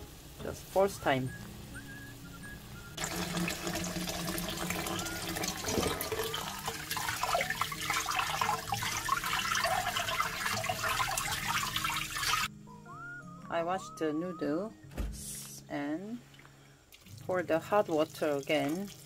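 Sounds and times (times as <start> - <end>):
tap water splashing into strainer: 3.0 - 12.5.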